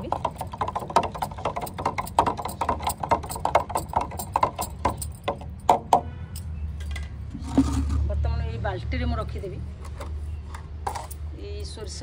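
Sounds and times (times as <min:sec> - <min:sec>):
stick knocking in plastic jar: 0:00.0 - 0:06.1.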